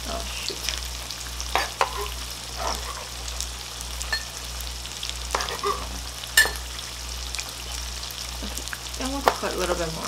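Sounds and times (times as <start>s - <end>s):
tofu sizzling in oil: 0.0s - 10.0s.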